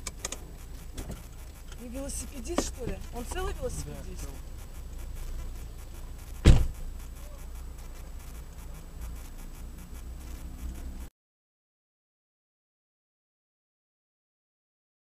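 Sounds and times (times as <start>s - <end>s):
low rumble inside car: 0.0s - 11.1s
sharp thump: 6.4s - 6.8s.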